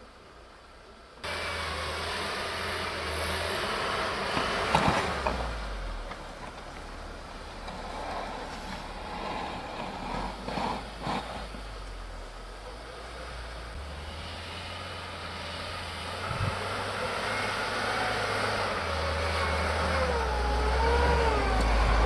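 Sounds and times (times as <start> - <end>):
engine running under load: 1.2 - 22.0
tyres churning snow: 1.2 - 22.0.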